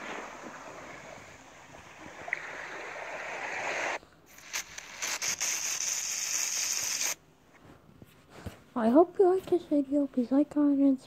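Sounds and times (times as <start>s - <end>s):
surf washing on a beach: 0.0s - 4.0s
crackling hiss: 0.0s - 7.2s.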